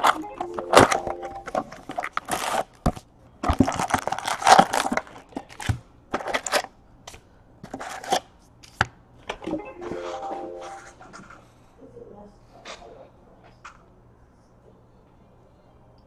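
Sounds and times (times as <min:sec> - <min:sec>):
card packs rustling and crinkling: 0:00.0 - 0:06.7.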